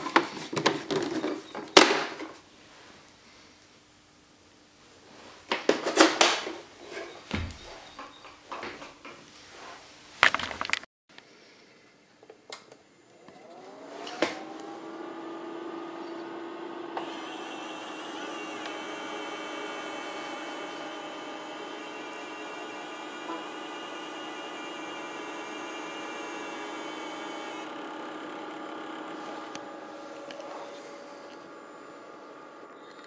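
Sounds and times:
knocks and rustles of packing: 0:00.0 - 0:02.4
projector fan whine and hum: 0:12.5 - 0:33.0.

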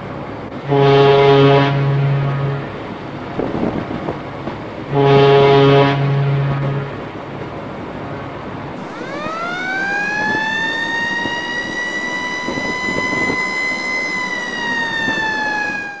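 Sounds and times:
siren wailing: 0:00.7 - 0:03.6, 0:08.8 - 0:16.0.

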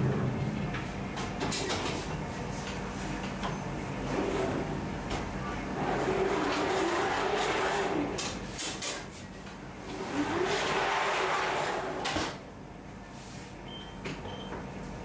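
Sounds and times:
metal oven loader sliding: 0:05.8 - 0:08.3, 0:09.9 - 0:12.4.

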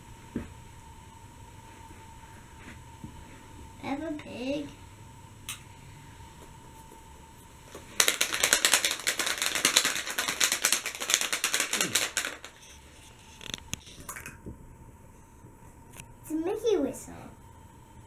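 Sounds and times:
toy rattling in plastic egg: 0:08.0 - 0:12.8.

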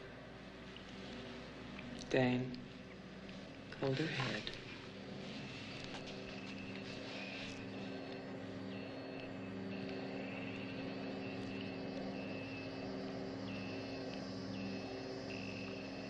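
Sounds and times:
low electronic hum: 0:00.0 - 0:16.0
thin high tone: 0:05.2 - 0:16.0
deeper tone: 0:06.0 - 0:16.0.

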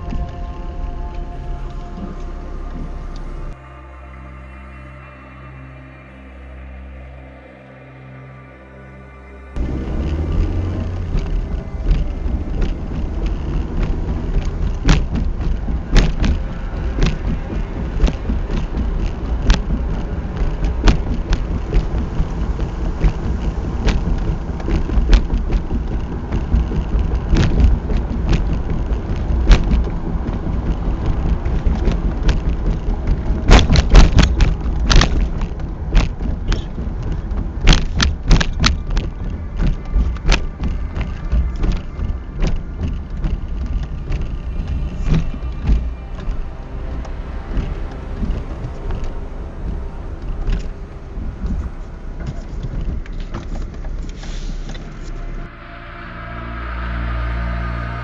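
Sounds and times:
car knocks and rattles: 0:09.6 - 0:54.9
tyres rumbling on gravel: 0:09.6 - 0:55.5.

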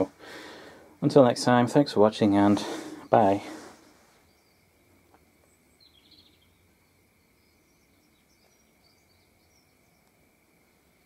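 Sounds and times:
soft bird chirps: 0:02.6 - 0:11.0.

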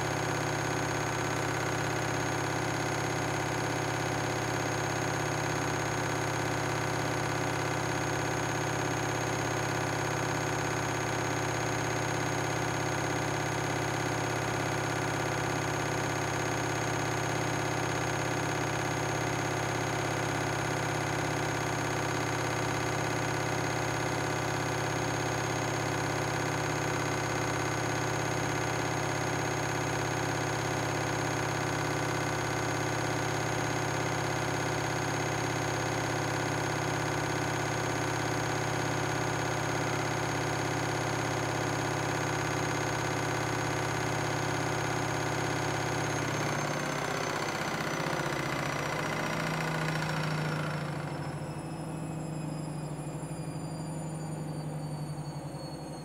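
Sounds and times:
washing machine spinning: 0:38.0 - 0:56.0.

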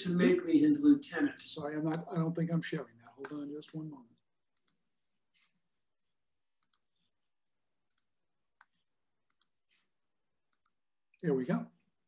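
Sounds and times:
faint computer mouse clicks: 0:04.6 - 0:04.8, 0:06.6 - 0:06.9, 0:07.9 - 0:09.6, 0:10.5 - 0:10.8.

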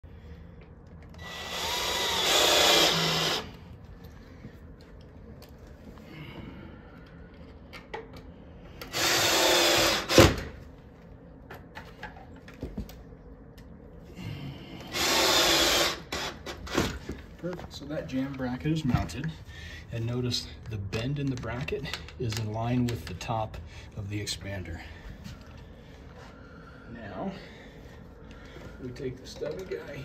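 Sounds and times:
cordless drill driving screws: 0:01.2 - 0:03.5, 0:08.8 - 0:10.4, 0:14.9 - 0:16.6.

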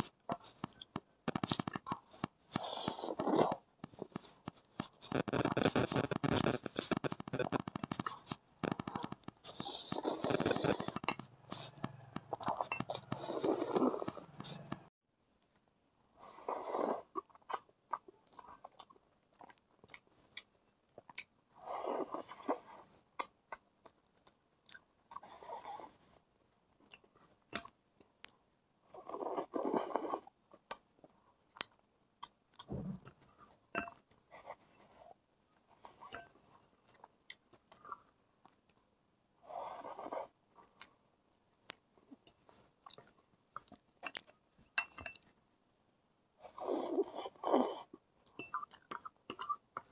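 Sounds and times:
chewing: 0:00.0 - 0:15.7, 0:17.0 - 0:21.3, 0:21.9 - 0:26.0, 0:29.0 - 0:38.8, 0:41.6 - 0:45.3, 0:46.5 - 0:49.9
person slurping noodles: 0:02.5 - 0:03.7, 0:05.0 - 0:14.9, 0:46.5 - 0:47.9.

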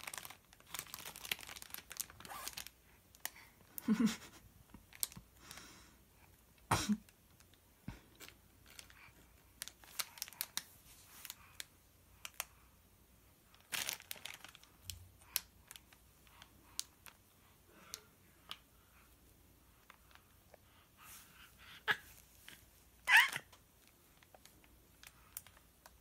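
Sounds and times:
plastic packet crackling: 0:00.0 - 0:03.3, 0:09.6 - 0:11.4, 0:13.5 - 0:16.0.

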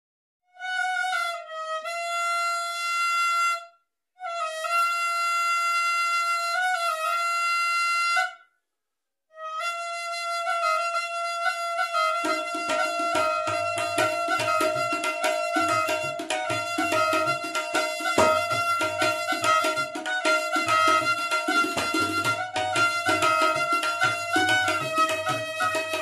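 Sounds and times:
double flute playing: 0:09.4 - 0:26.0.

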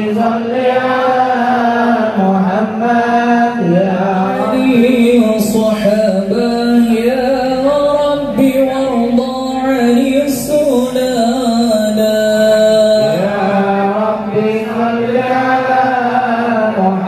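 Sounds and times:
male voices chanting over pa: 0:00.0 - 0:17.0.

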